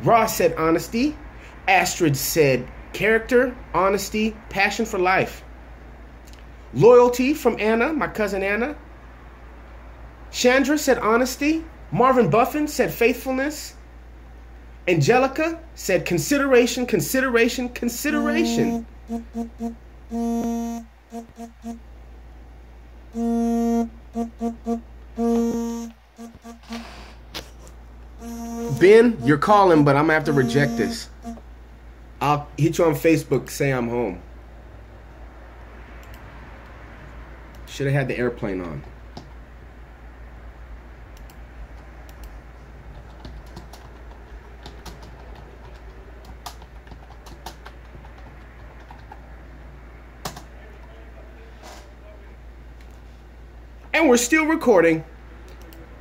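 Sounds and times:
low steady hum: 0:00.0 - 0:56.0
phone ringtone buzzy tone: 0:18.1 - 0:21.8, 0:23.1 - 0:26.9, 0:28.2 - 0:31.4
ringtone short beeps: 0:18.2 - 0:21.8, 0:23.2 - 0:26.8, 0:28.2 - 0:31.4
computer keyboard typing: 0:42.9 - 0:49.3, 0:50.2 - 0:50.5.

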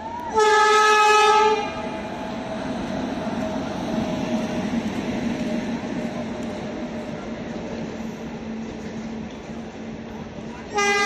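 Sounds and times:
train coaches rumbling past: 0:00.0 - 0:11.0
train horn blast: 0:00.3 - 0:02.0, 0:10.7 - 0:11.0.

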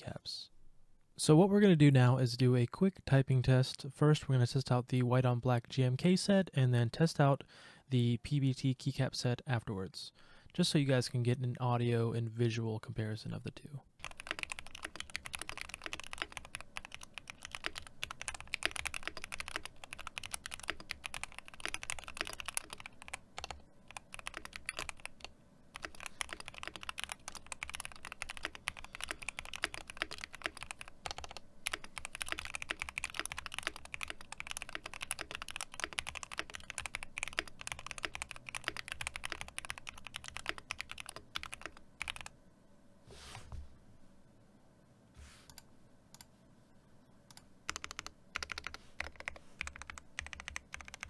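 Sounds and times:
mechanical keyboard typing: 0:14.0 - 0:42.3, 0:47.3 - 0:51.0.

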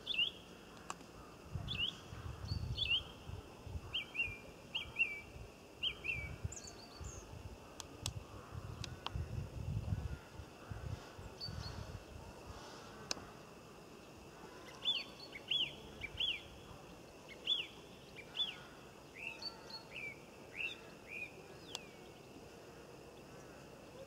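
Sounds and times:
small bird chirping: 0:01.6 - 0:03.3, 0:14.0 - 0:22.3.

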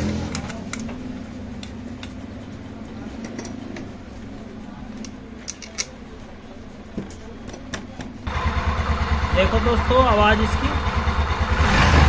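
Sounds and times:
metallic clicks of tools: 0:00.3 - 0:01.0, 0:05.0 - 0:06.0.

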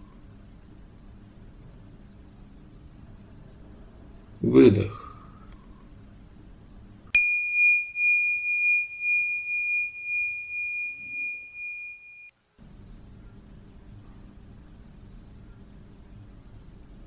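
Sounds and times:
faint steady hiss: 0:00.0 - 0:17.0
meditation bell ringing: 0:07.1 - 0:12.3.

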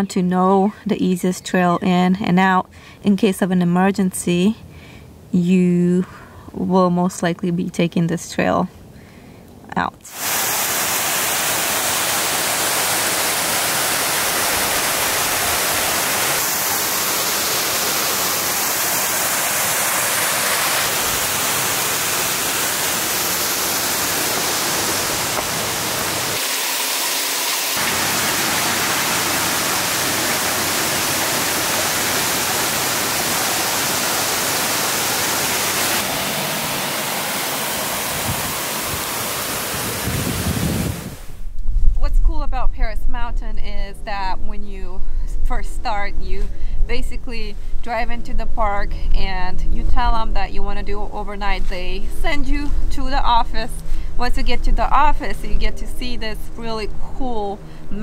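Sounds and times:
water rushing over rocks: 0:10.1 - 0:41.3.

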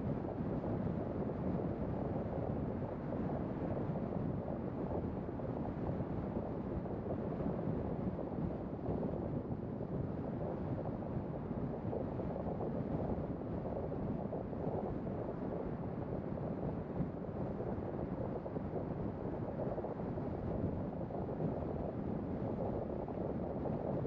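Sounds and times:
wind noise: 0:00.0 - 0:24.0.

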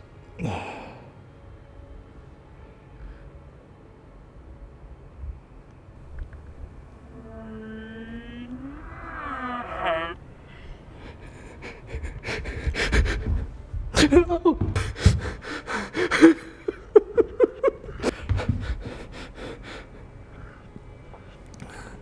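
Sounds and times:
man breathing hard and gasping: 0:10.5 - 0:13.6, 0:14.8 - 0:16.6, 0:17.9 - 0:20.7.

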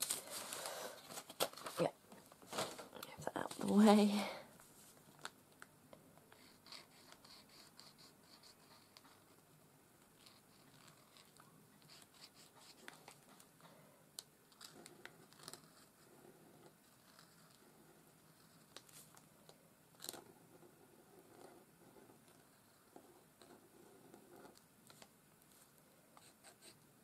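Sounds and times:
marker scratching and tapping on card: 0:06.3 - 0:09.4, 0:10.2 - 0:13.4, 0:26.2 - 0:26.8.

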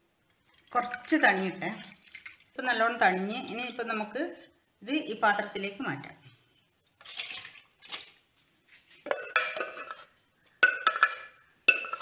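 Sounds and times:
wooden spoon scraping pot: 0:08.7 - 0:12.0.

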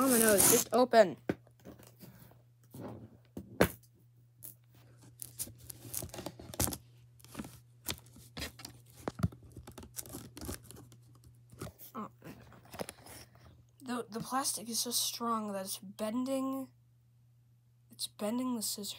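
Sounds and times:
plastic wrap crinkling: 0:00.0 - 0:00.8, 0:05.0 - 0:11.2.

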